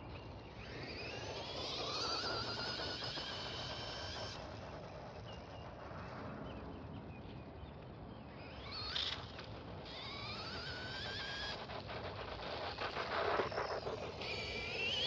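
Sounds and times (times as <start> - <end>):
rc car motor whine: 0.0 - 5.2, 8.3 - 15.0.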